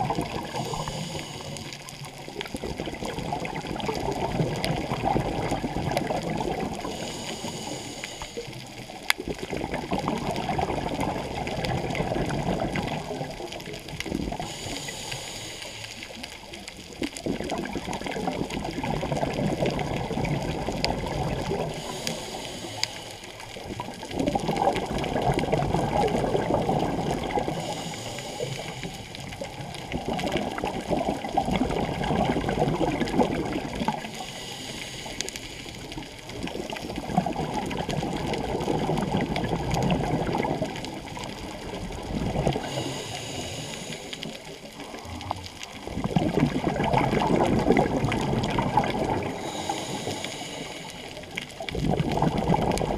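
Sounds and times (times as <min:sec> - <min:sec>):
exhaled bubbles rushing: 0:00.0 - 0:07.6, 0:08.5 - 0:14.9, 0:16.0 - 0:22.6, 0:23.4 - 0:34.3, 0:35.6 - 0:52.9
diver breathing through regulator: 0:00.4 - 0:02.1, 0:06.8 - 0:08.8, 0:14.3 - 0:16.3, 0:21.3 - 0:23.6, 0:27.3 - 0:29.5, 0:34.0 - 0:36.1, 0:42.5 - 0:45.8, 0:49.0 - 0:51.6.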